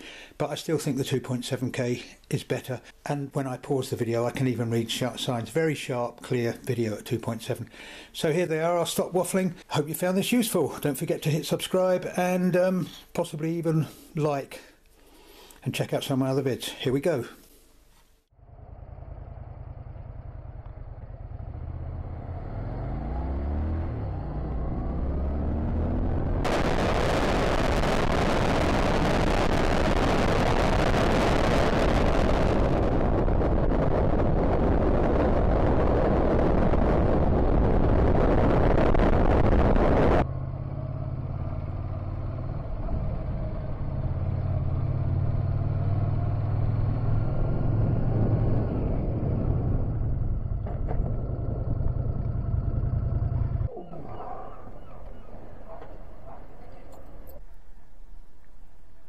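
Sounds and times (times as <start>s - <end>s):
motorcycle engine humming: 18.3s - 26.6s, 39.9s - 58.5s
wind noise on microphone: 25.8s - 40.2s.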